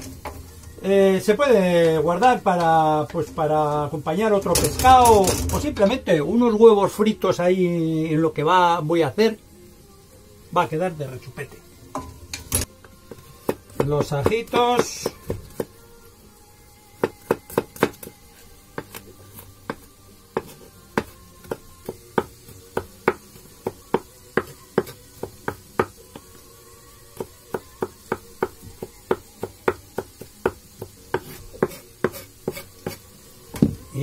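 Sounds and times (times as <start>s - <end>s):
knife chopping on wooden board: 17.0s - 18.1s, 27.5s - 33.0s.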